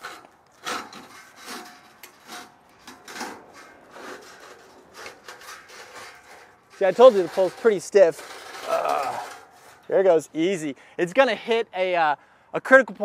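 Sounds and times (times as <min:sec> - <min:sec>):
rope rubbing and scraping: 0:00.0 - 0:10.2.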